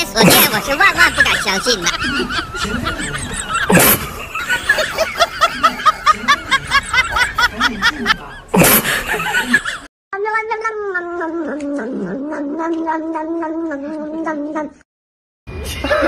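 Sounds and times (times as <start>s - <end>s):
high giggling laughter: 0.2s - 9.9s.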